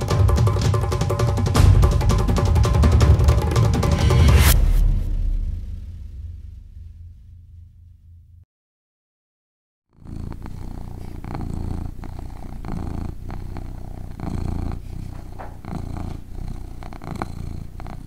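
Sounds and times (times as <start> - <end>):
cat purring: 9.9 - 18.0.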